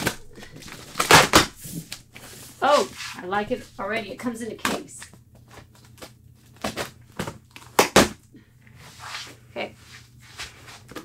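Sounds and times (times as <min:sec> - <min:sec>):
sharp cracks: 0:00.0 - 0:02.0
packing tape tearing: 0:05.5 - 0:08.2.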